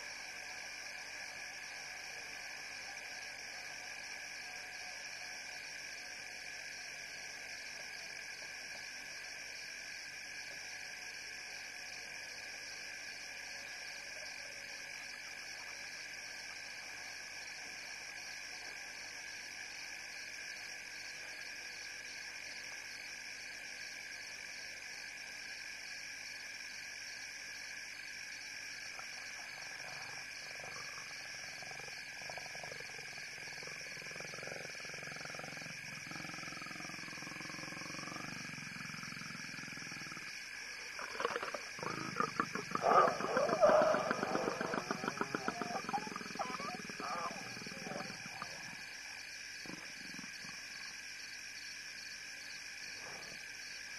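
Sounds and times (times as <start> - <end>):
insects chirping: 0.0 - 53.9
frogs calling: 29.8 - 50.9
lions growling: 41.0 - 48.8.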